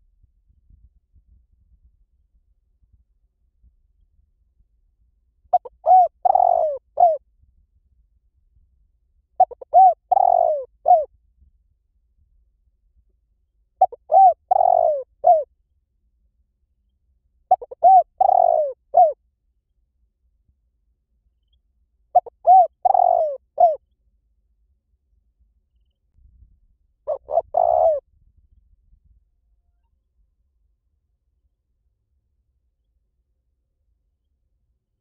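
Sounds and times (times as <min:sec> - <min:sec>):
dove cooing: 0:05.5 - 0:07.2, 0:09.4 - 0:11.1, 0:13.8 - 0:15.5, 0:17.5 - 0:19.2, 0:22.1 - 0:23.8, 0:27.1 - 0:28.0.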